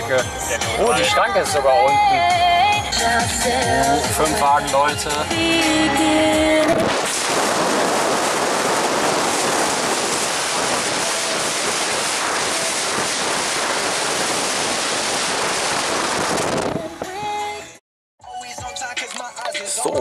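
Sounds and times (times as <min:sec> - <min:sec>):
wind and road noise in car: 0:05.5 - 0:17.6.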